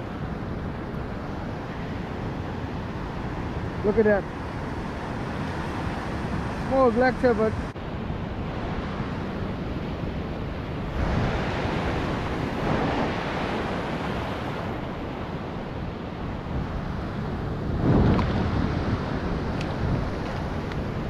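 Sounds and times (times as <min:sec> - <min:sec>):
wind on microphone: 0:00.0 - 0:21.0
surf breaking over rocks: 0:10.8 - 0:15.3.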